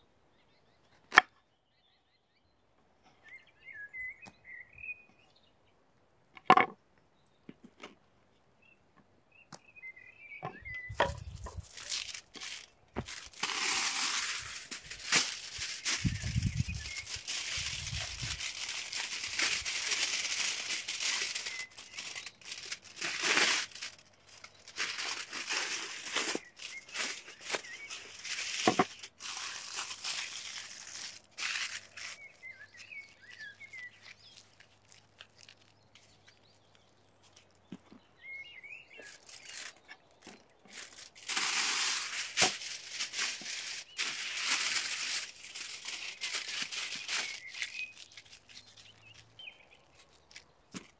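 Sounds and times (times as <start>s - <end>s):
aluminium foil crinkling: 10.9s - 37.8s, 38.6s - 50.9s
bird chirping faintly: 31.9s - 41.0s.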